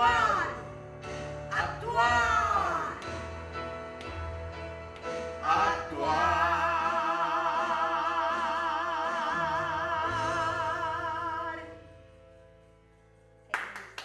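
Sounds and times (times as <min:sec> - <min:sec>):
man and woman singing: 0:01.5 - 0:03.0, 0:05.4 - 0:11.8.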